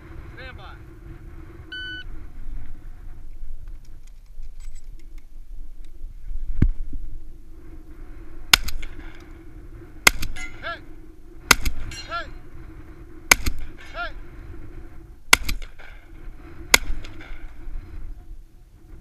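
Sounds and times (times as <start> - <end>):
shot timer beep: 1.7 - 2.1
shotgun shots: 8.5 - 9.2, 10.0 - 10.8, 11.4 - 12.3, 13.3 - 14.1, 15.3 - 16.1, 16.7 - 17.6
short ringing: 11.8 - 12.3.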